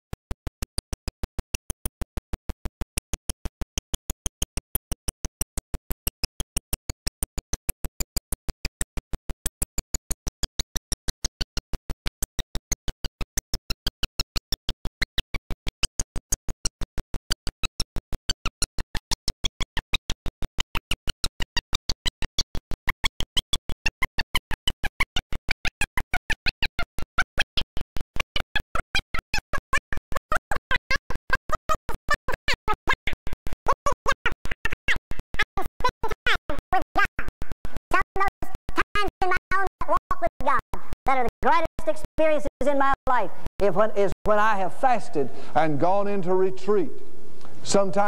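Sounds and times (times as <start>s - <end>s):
stuttering glitched voice: 29.1s - 46.9s.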